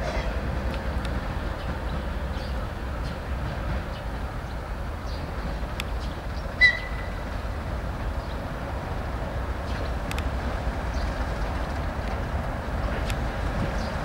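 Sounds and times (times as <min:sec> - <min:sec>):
train rumbling: 0:00.0 - 0:14.0.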